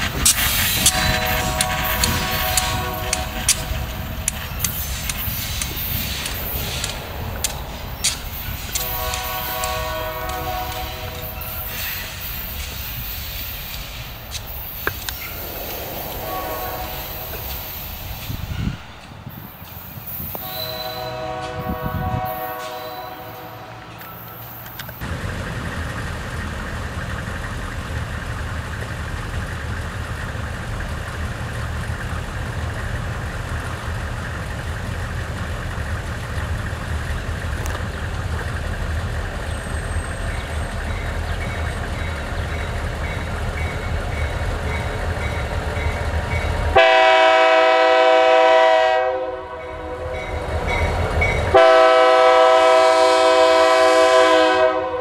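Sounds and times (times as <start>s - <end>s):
diesel locomotive engine rumble: 0.0s - 55.0s
locomotive air horn blast: 0.5s - 4.4s, 8.6s - 12.2s, 15.2s - 18.9s, 20.4s - 23.9s, 46.7s - 50.2s, 51.4s - 55.0s
crossing bell ringing: 20.4s - 24.8s, 39.6s - 46.9s, 49.5s - 51.7s.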